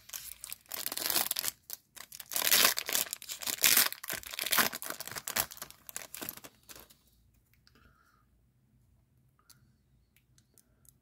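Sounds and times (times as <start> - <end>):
wrapper tearing and crinkling: 0.0 - 6.8.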